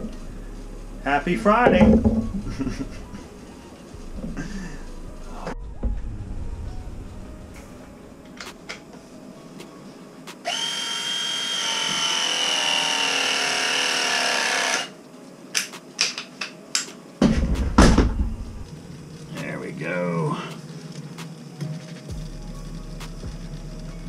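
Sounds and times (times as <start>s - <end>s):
tubing cutter motor whine: 10.4s - 14.9s.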